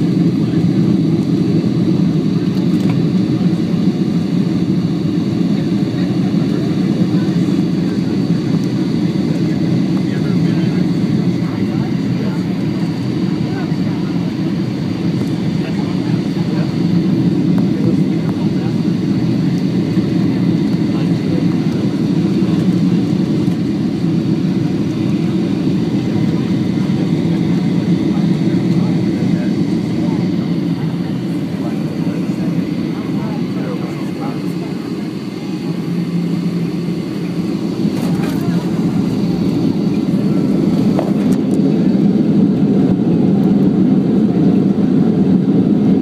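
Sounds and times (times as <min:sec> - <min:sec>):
jet engine rumble in cabin: 0:00.0 - 0:46.0.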